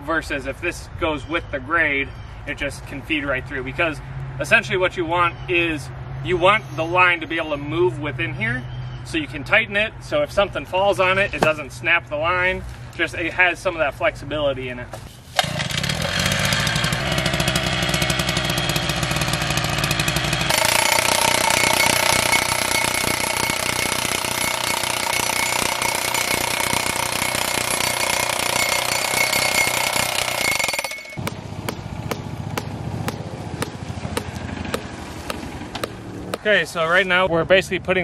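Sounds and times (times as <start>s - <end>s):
post pounder hammering: 20.5s - 36.5s
low engine rumble with ticks: 31.2s - 36.5s.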